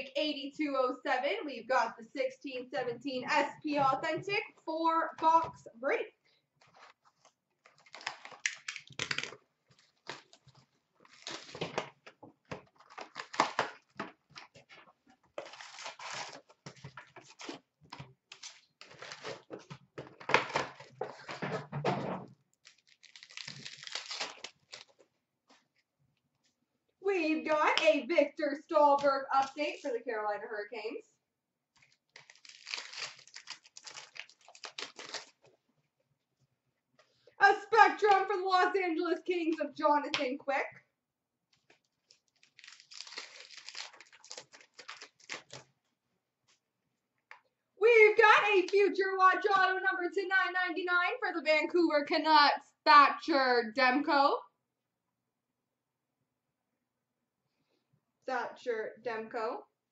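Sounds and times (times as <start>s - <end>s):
plastic wrap crinkling and tearing: 6.6s - 21.3s, 22.5s - 25.1s, 31.8s - 35.6s, 41.6s - 45.8s.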